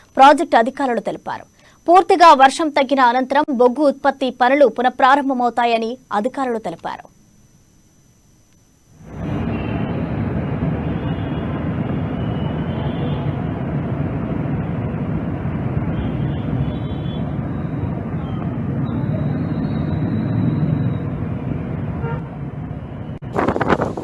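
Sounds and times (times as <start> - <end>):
motorbikes passing: 9.0 - 22.8.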